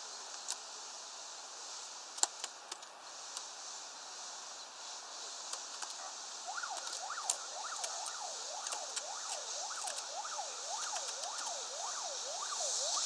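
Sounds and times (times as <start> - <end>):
steady hiss: 0.0 - 13.0
sharp clicks: 2.2 - 3.5, 6.6 - 10.2, 10.8 - 11.6
siren yelping: 6.4 - 13.0.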